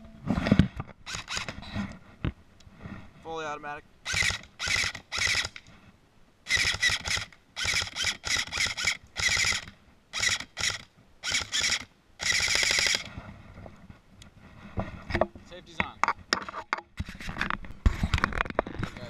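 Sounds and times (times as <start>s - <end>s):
airsoft gun firing bursts: 4.0s - 5.6s, 6.5s - 13.1s.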